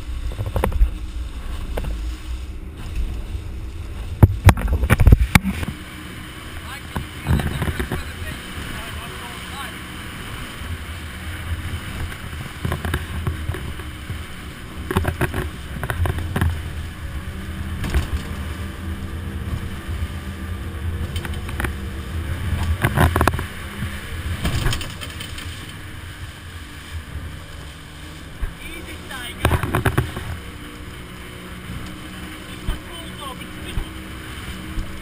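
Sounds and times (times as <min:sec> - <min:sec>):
motorboat engine hum: 0:00.0 - 0:35.0
water rushing along hull: 0:00.0 - 0:35.0
sharp thumps: 0:03.9 - 0:05.8.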